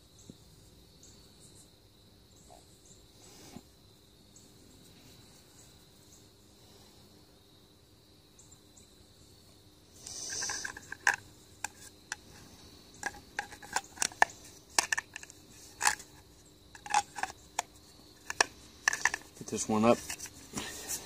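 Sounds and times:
plastic sheath clicks: 13.0s - 16.1s, 16.8s - 19.3s.

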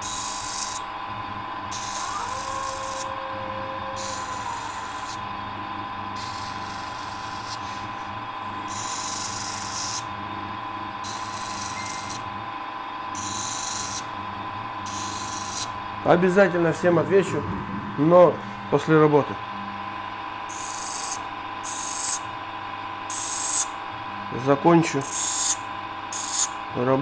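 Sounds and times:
welding torch hissing: 0.0s - 0.9s, 1.7s - 3.4s, 4.0s - 5.2s, 6.2s - 7.8s, 8.7s - 10.0s, 11.0s - 12.2s, 13.2s - 14.1s, 14.9s - 15.7s, 20.5s - 22.3s, 23.1s - 23.7s, 25.0s - 26.6s
faint high hum: 0.0s - 27.0s.

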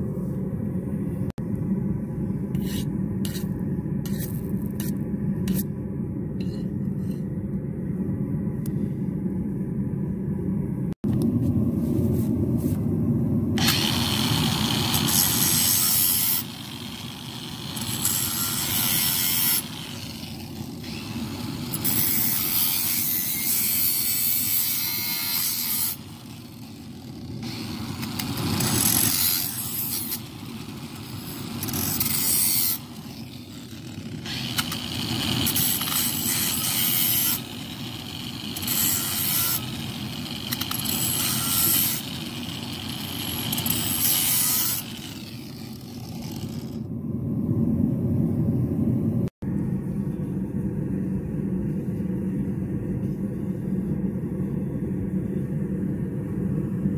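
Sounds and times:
angle grinder grinding steel: 13.6s - 46.8s.

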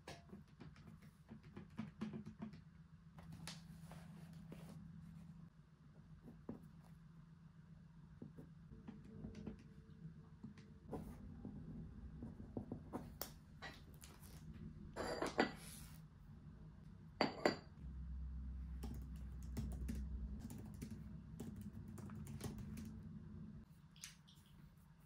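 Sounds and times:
low hum: 17.8s - 23.7s.

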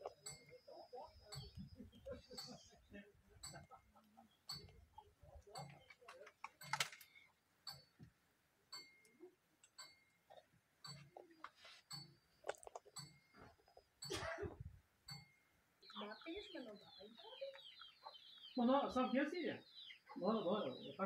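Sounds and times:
faint ticks and taps: 0.0s - 14.2s.

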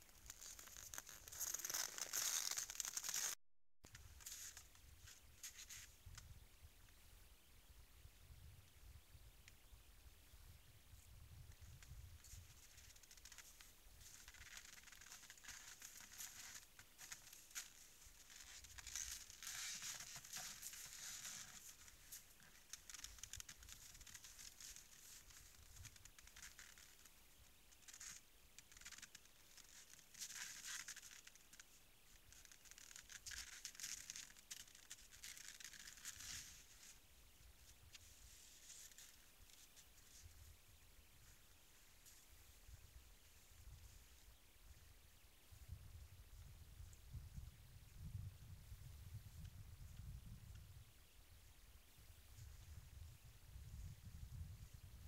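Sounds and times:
crunching and scraping in snow: 0.0s - 6.1s, 11.6s - 27.2s, 27.8s - 44.8s.

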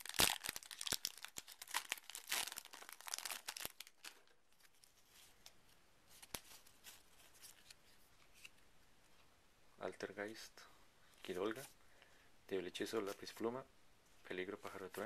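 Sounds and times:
foil wrapper tearing and crinkling: 0.0s - 4.2s
cards being handled: 2.5s - 8.6s.

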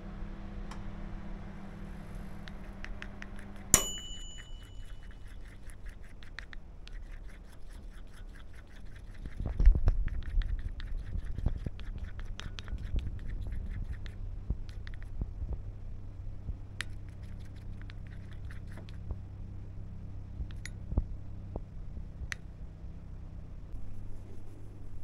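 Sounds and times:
sharp ringing clink: 3.7s - 5.1s.

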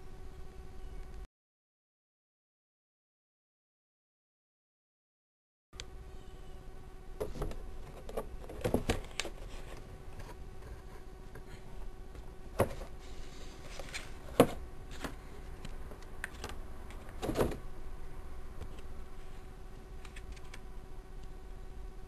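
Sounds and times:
steady low hum: 0.0s - 1.3s, 5.8s - 22.0s.

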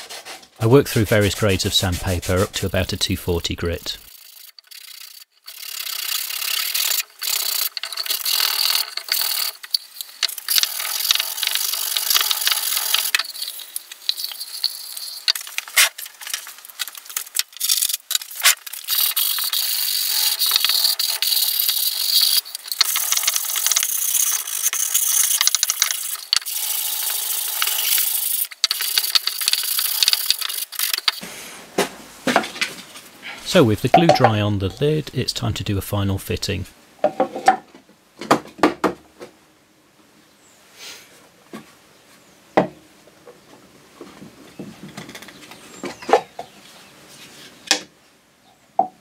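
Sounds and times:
sandpaper rubbing on wood: 0.2s - 3.0s.

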